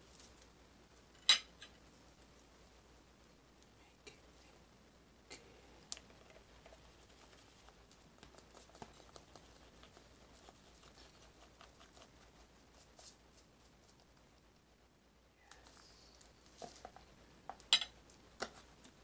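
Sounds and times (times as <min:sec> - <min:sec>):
grated cheese pattering: 0:05.9 - 0:19.0.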